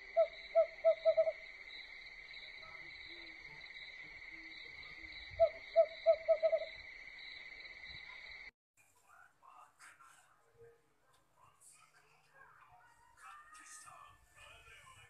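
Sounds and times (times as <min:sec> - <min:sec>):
owl hooting: 0:00.0 - 0:06.9
crickets chirping: 0:00.0 - 0:08.5.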